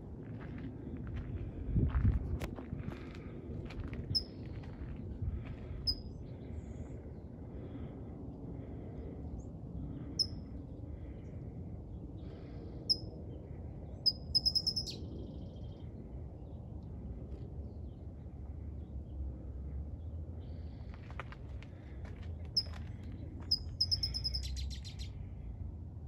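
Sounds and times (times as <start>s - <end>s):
steady low rumble: 0.0s - 26.0s
bird chirping: 14.0s - 15.9s, 23.5s - 25.2s.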